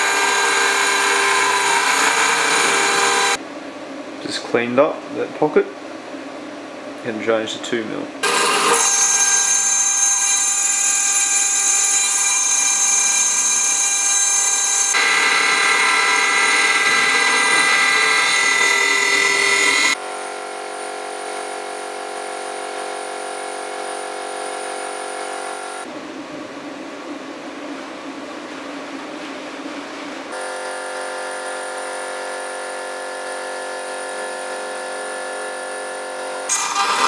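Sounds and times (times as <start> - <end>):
router spindle whining: 0.0 - 3.4, 8.2 - 20.0, 34.3 - 37.0.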